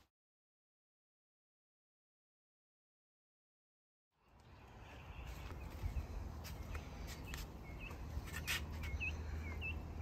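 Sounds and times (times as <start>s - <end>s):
small birds chirping: 4.2s - 10.0s.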